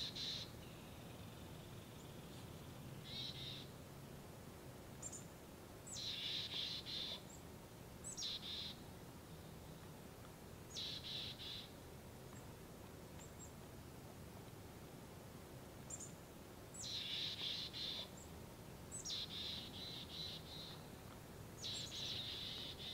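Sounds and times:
songbird buzzy calls: 0:00.0 - 0:03.8, 0:05.9 - 0:09.8, 0:10.7 - 0:12.5, 0:15.8 - 0:22.9
faint low background hum: 0:00.0 - 0:22.9.

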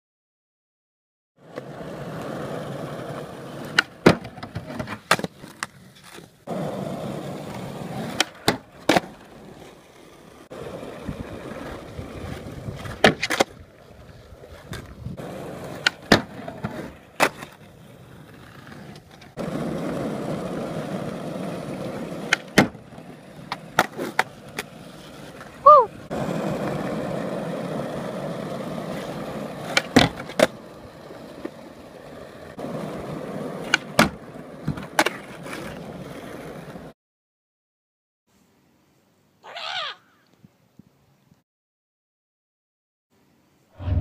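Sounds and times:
skateboard clacks: 0:01.4 - 0:09.8, 0:10.6 - 0:13.6, 0:14.6 - 0:17.7, 0:18.3 - 0:36.9
skateboard wheels rolling on asphalt: 0:01.4 - 0:37.0.

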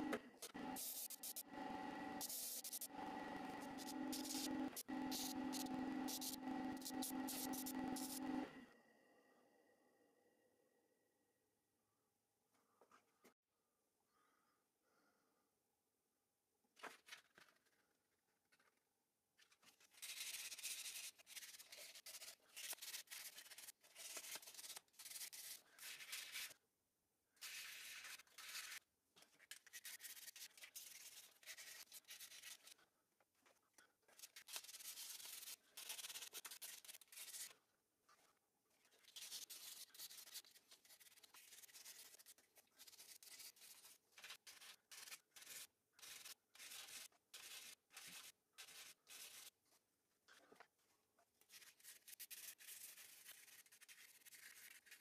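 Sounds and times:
hand sanding metal on sandpaper: 0:00.8 - 0:01.4, 0:02.2 - 0:02.9, 0:03.5 - 0:08.3, 0:39.0 - 0:49.5, 0:51.5 - 0:55.0.

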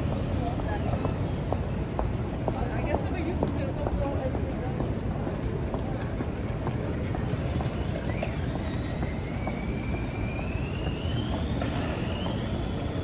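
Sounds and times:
city street traffic: 0:00.0 - 0:13.0
high-pitched vehicle whine: 0:07.1 - 0:13.0.

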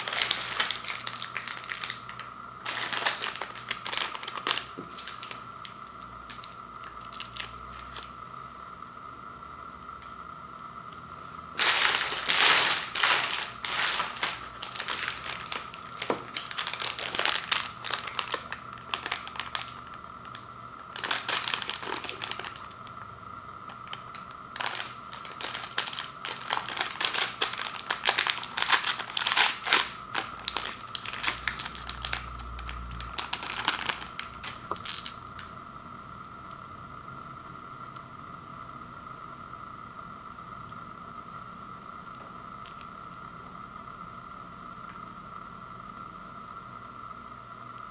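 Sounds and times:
candy wrappers crinkling: 0:00.0 - 0:08.1, 0:11.6 - 0:23.0, 0:23.6 - 0:35.5, 0:42.1 - 0:42.9
wrapper tearing open: 0:00.0 - 0:08.1, 0:11.6 - 0:22.8, 0:23.7 - 0:35.5.

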